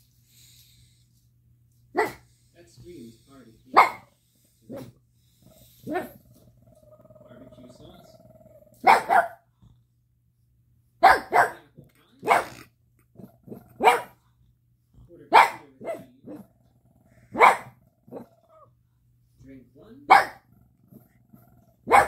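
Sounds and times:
dog barking: 0:01.9 - 0:02.3, 0:03.7 - 0:04.9, 0:05.8 - 0:06.2, 0:08.8 - 0:09.4, 0:11.0 - 0:14.2, 0:15.3 - 0:16.5, 0:17.3 - 0:18.4, 0:20.1 - 0:20.6, 0:21.8 - 0:22.0.

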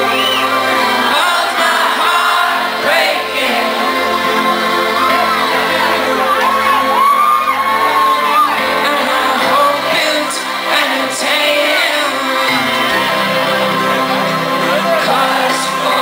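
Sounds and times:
man singing: 0:08.7 - 0:13.7, 0:14.6 - 0:16.0.

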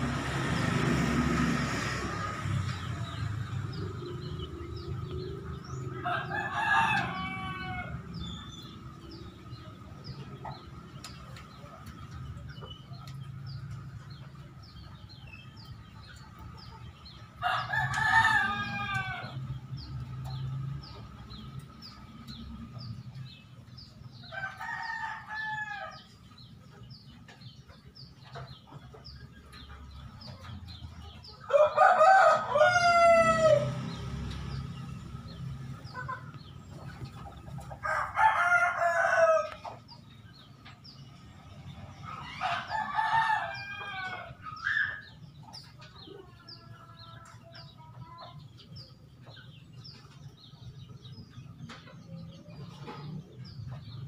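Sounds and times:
sparrows chirping: 0:00.0 - 0:54.0
rooster crowing: 0:05.8 - 0:08.4, 0:17.4 - 0:19.4, 0:24.3 - 0:26.1, 0:31.5 - 0:34.0, 0:37.8 - 0:39.6, 0:42.1 - 0:45.1.

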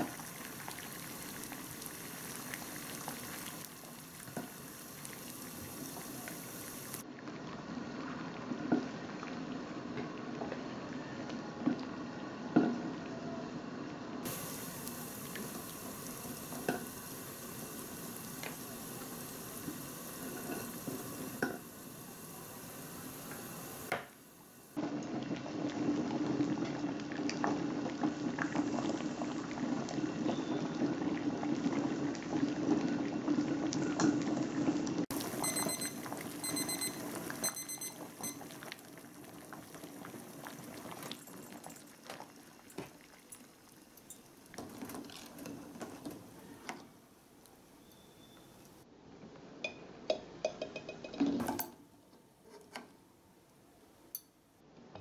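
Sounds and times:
water boiling and bubbling: 0:00.0 - 0:10.9, 0:14.2 - 0:47.9
kitchen timer beeping: 0:35.1 - 0:38.7.

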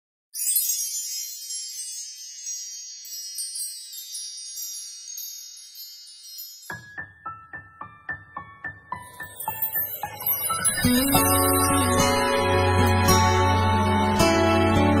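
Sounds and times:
shimmering chime: 0:00.4 - 0:07.2, 0:08.9 - 0:14.9
keyboard music over low beat: 0:06.7 - 0:15.0.

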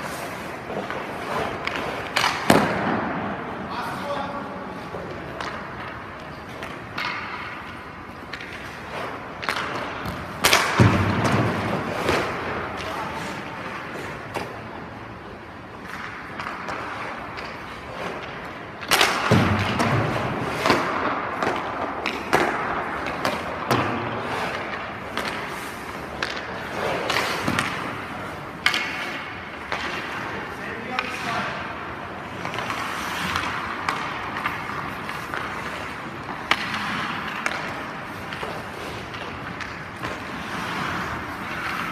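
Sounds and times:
puck impacts: 0:00.0 - 0:41.9
skates scraping ice: 0:00.0 - 0:41.9
stick and pad knocks: 0:00.7 - 0:03.2, 0:09.4 - 0:12.4, 0:15.9 - 0:25.5.

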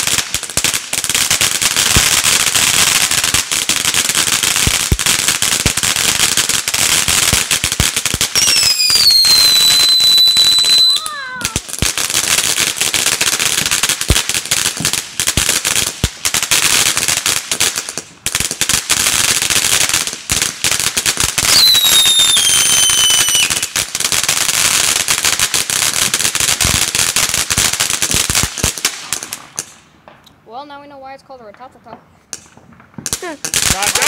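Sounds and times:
firework fountain crackling: 0:00.0 - 0:34.0
falling firework whistle: 0:08.3 - 0:11.6, 0:21.4 - 0:23.7.

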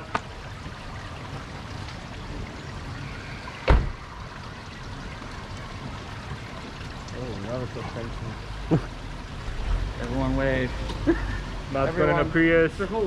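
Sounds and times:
car door thump: 0:03.6 - 0:04.0.

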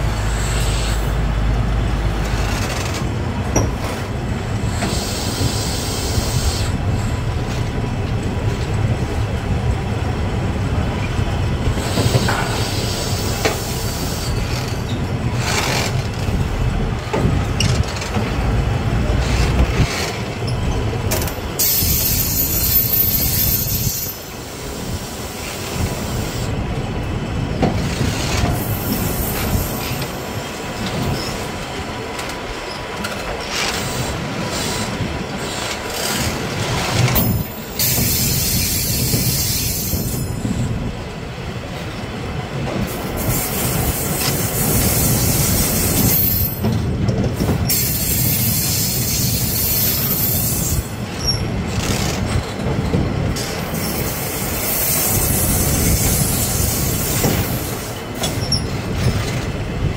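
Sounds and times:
train wheels rumbling on bridge: 0:00.0 - 0:59.9
high-pitched wheel squeal: 0:21.6 - 0:24.4.

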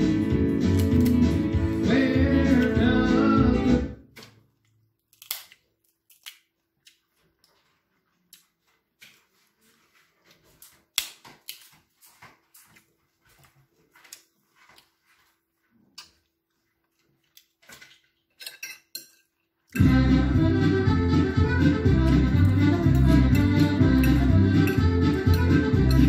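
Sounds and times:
crab shells cracking: 0:04.7 - 0:07.1.

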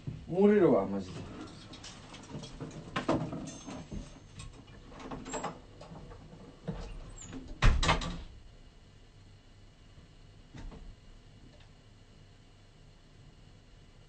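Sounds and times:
door shutting thump: 0:07.6 - 0:08.3.

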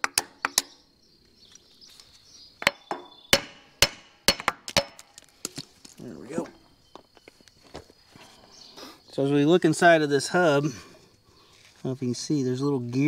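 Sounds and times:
metal knocks on wheel hub: 0:02.6 - 0:05.0.

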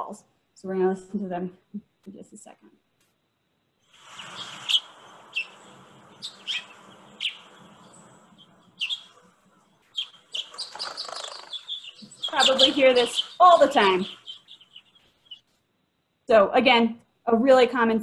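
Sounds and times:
faint steady hiss: 0:00.0 - 0:10.4
finch chirps: 0:04.0 - 0:09.2, 0:09.8 - 0:15.5.

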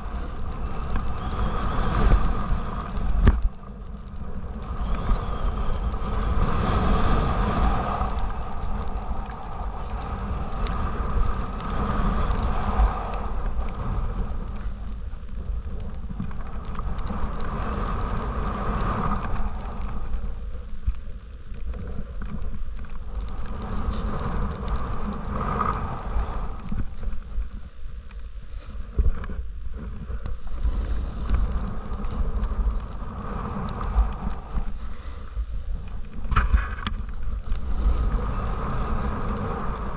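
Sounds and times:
wind rumble on microphone: 0:00.0 - 0:39.9
snowboard scraping on snow: 0:04.3 - 0:09.2, 0:37.6 - 0:39.9.

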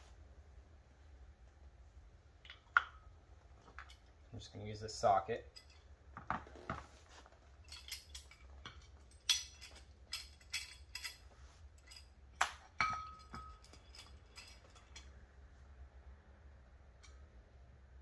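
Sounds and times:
metal tools clinking on brake caliper: 0:05.4 - 0:05.9, 0:07.6 - 0:15.2.

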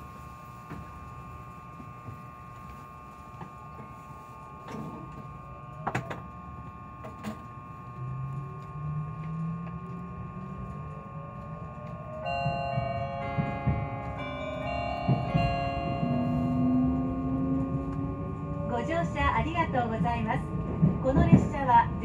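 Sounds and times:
electric motor whine rising: 0:07.8 - 0:13.3, 0:13.9 - 0:18.7
onboard chime ringing: 0:12.2 - 0:17.3
train clunks: 0:12.2 - 0:18.1, 0:19.2 - 0:22.0.

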